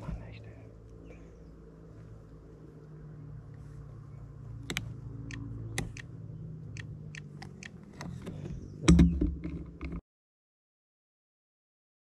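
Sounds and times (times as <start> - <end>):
steady low hum: 0.0 - 10.0
sharp clicks and taps: 4.6 - 6.1, 6.7 - 8.1.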